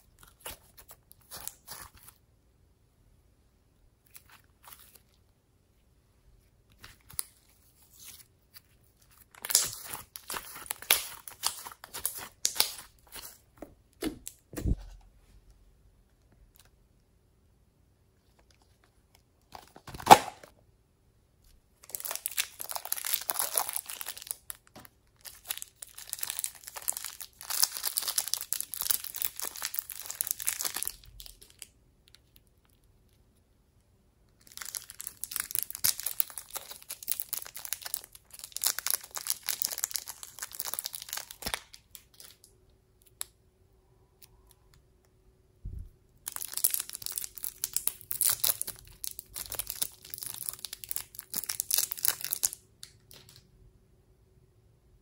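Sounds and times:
plastic wrappers crinkling: 6.7 - 14.4, 21.8 - 32.8, 34.4 - 42.5, 46.2 - 53.4.

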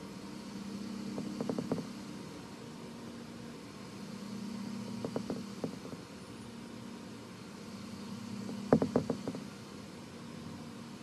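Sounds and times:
low background hum: 0.0 - 11.0
short knocks: 1.1 - 2.0, 5.0 - 6.0, 8.4 - 9.5.

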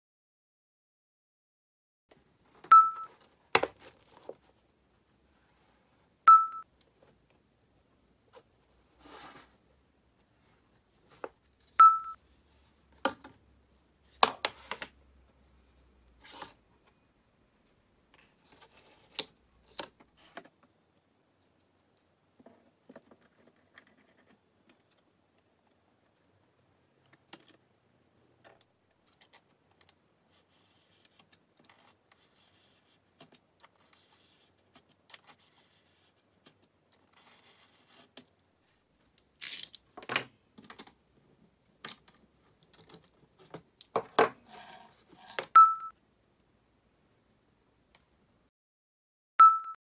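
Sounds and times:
short high beeps: 2.7 - 3.1, 6.3 - 6.6, 11.8 - 12.2, 45.6 - 45.9, 49.4 - 49.8.

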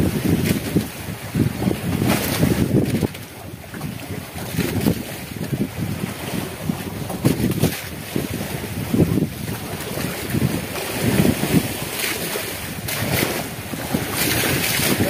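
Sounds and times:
sea waves washing: 0.0 - 15.0
wind buffeting microphone: 0.0 - 15.0.

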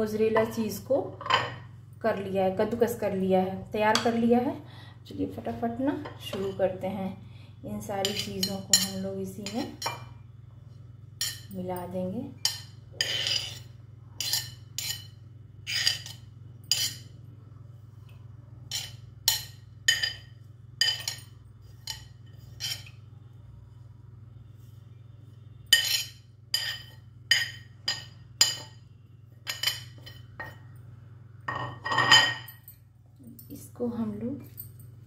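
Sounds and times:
low steady hum: 0.0 - 35.0
spoon scraping and clinking dishes: 8.0 - 10.2, 12.4 - 17.2, 18.6 - 23.1, 25.6 - 30.8, 31.5 - 32.7.

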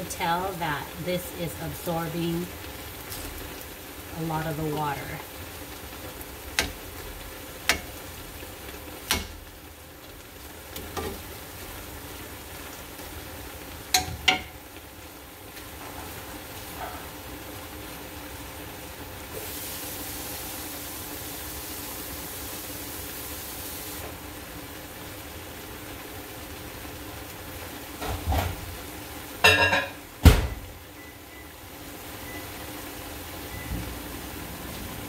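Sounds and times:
soup simmering with a hiss: 0.0 - 35.0
wooden spatula knocking a pan: 13.9 - 14.6.

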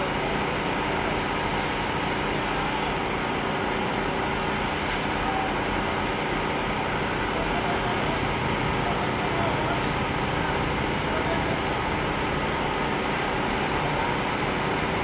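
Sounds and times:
ship engine rumbling drone: 0.0 - 15.0.

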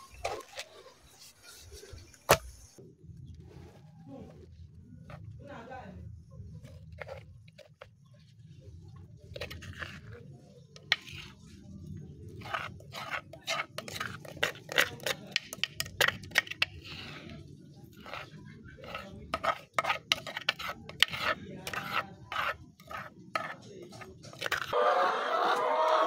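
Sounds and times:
metal spoon scraping: 9.2 - 11.7, 12.3 - 24.8.

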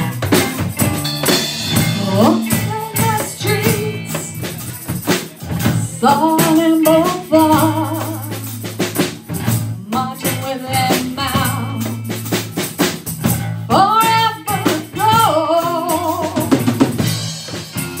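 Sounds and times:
woman singing: 0.0 - 4.7, 5.7 - 8.6, 9.7 - 12.2, 13.7 - 16.8
djembe drumming: 0.0 - 10.1
live band playing: 0.0 - 18.0.

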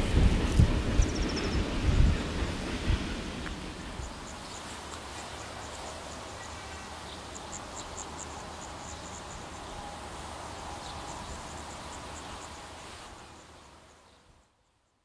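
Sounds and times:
insects chirping: 1.0 - 1.7, 3.8 - 14.2.

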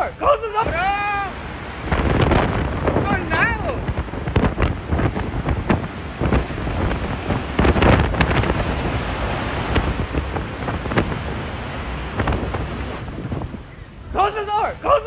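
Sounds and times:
strong wind on microphone: 0.0 - 15.0
flying debris banging and clattering: 1.8 - 13.5.

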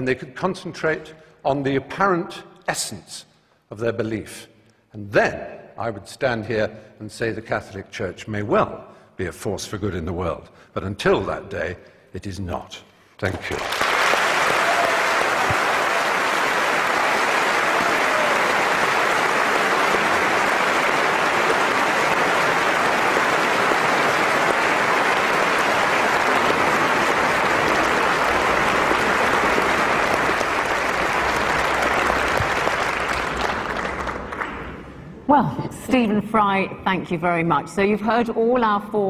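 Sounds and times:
large audience applauding: 13.3 - 34.8.

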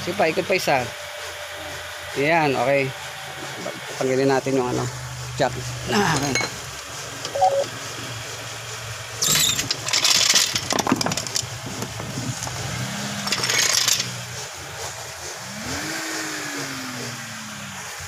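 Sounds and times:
rising and falling tone: 7.3 - 7.7.

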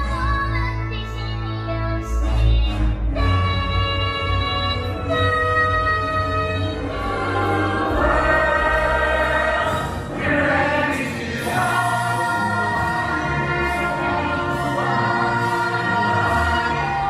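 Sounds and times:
choir singing held notes: 6.7 - 17.0.

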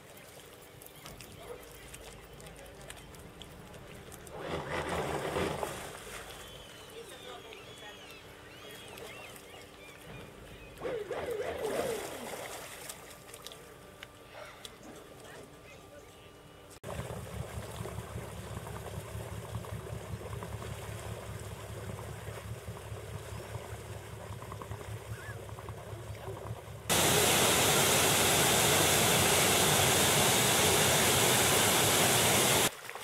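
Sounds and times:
rush of water: 26.9 - 33.0.

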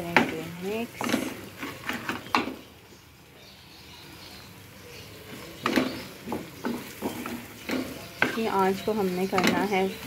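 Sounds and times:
spatula scraping frying pan: 0.2 - 2.3, 5.3 - 10.0.

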